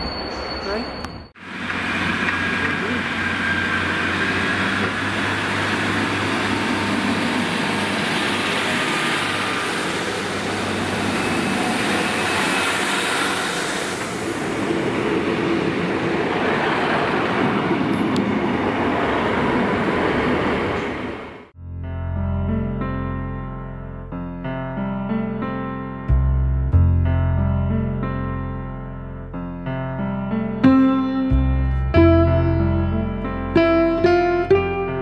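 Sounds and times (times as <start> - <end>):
diesel train engine: 0.0 - 21.5
train wheels on rails: 0.0 - 21.5.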